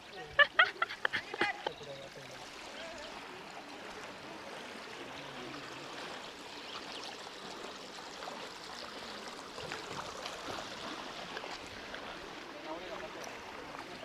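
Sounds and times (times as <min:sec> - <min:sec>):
stream babbling over rocks: 0:00.0 - 0:14.0.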